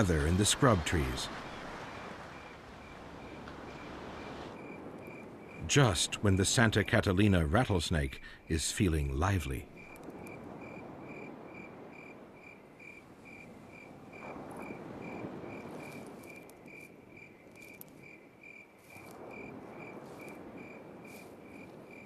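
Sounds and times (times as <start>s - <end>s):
cricket chirping: 1.4s - 5.9s, 9.7s - 22.0s.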